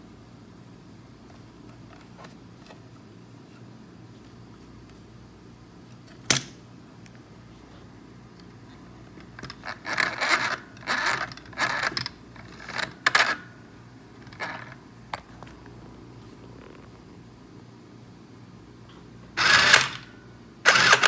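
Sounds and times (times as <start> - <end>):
sewing machine stitching: 19.4 - 20.0, 20.7 - 21.0.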